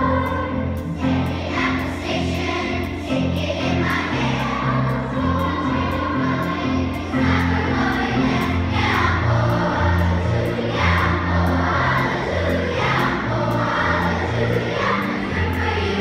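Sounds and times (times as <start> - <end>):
children's choir singing: 0.0 - 16.0
instrumental accompaniment: 0.0 - 16.0.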